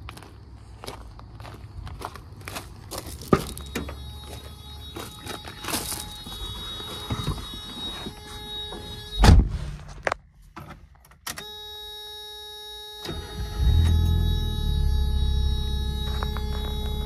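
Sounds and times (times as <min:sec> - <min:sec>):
electronic warning tone: 0:03.6 - 0:09.3, 0:11.4 - 0:17.0
car door shutting: 0:08.7 - 0:09.8.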